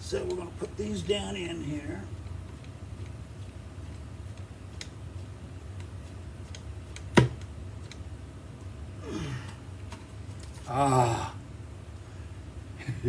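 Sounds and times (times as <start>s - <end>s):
sharp knock on guitar body: 7.2s - 7.4s.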